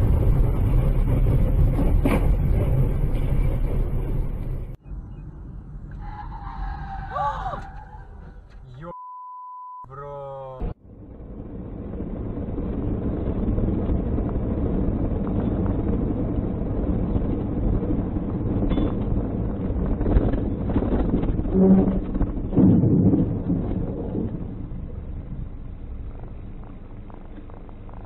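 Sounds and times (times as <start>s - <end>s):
road and wind rumble in car: 0.0s - 9.0s, 10.2s - 28.0s
truck crashing: 20.1s - 25.3s.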